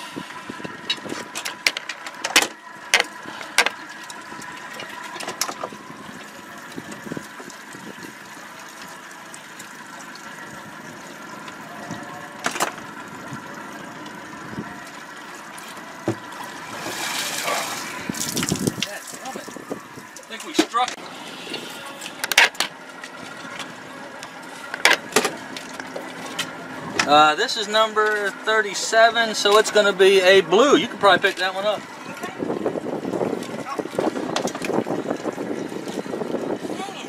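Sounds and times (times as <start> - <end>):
boat engine idling: 0.0 - 37.0
water splashing: 2.6 - 23.6.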